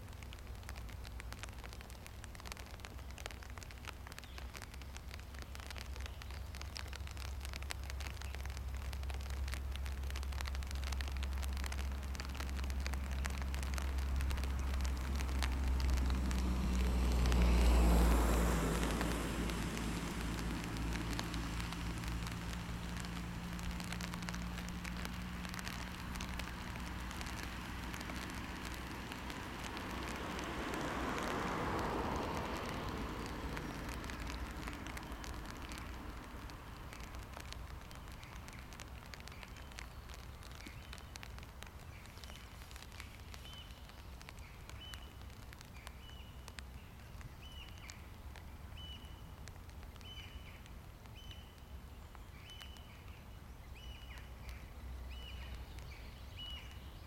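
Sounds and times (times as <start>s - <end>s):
vehicle passing: 13.5s - 37.5s.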